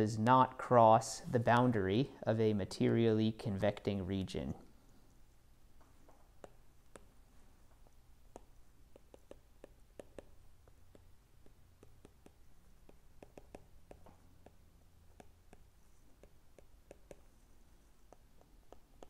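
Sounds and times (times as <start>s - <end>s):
low steady hum: 0.0s - 19.0s
stylus tapping on glass screen: 8.3s - 17.3s.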